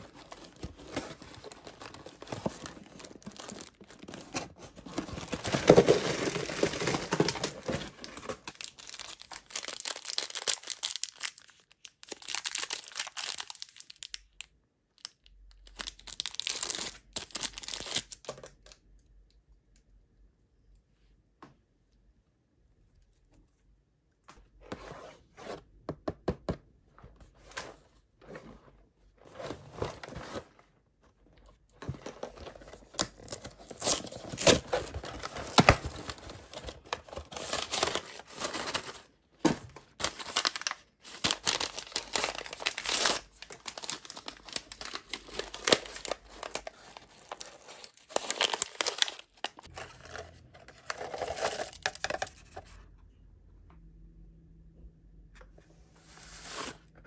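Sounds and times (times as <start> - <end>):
cardboard box opening: 0.0 - 8.6
paper packets tearing and crinkling: 0.0 - 14.1, 32.1 - 52.2.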